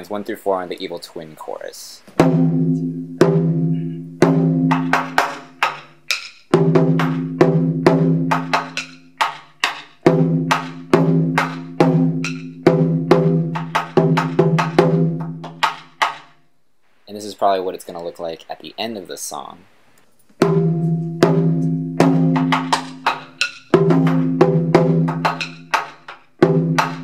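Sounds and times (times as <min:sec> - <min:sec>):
drum head strikes: 0:02.1 - 0:16.3, 0:20.4 - 0:27.0.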